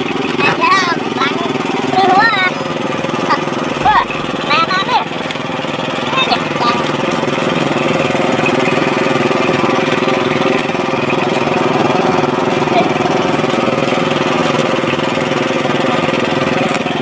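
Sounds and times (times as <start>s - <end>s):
boat engine idling: 0.0s - 17.0s.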